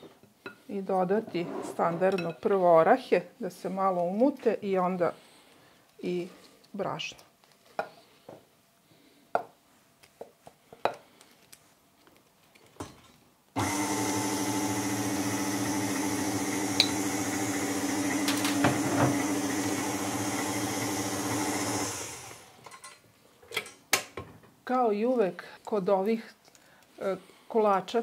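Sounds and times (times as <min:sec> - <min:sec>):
stand mixer running: 0:13.6 - 0:22.6.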